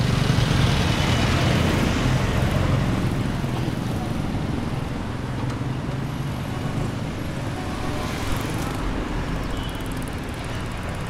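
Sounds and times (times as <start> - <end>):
road noise: 0.0 - 11.0
vehicle engines humming: 0.0 - 11.0.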